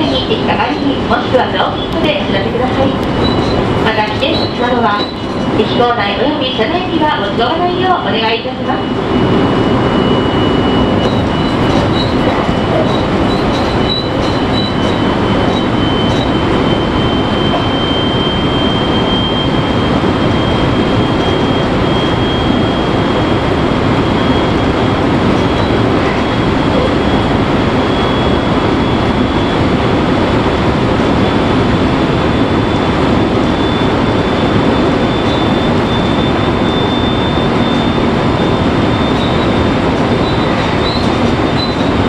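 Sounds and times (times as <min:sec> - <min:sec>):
train wheels rumbling: 0:00.0 - 0:42.0
thin high whine: 0:08.2 - 0:42.0.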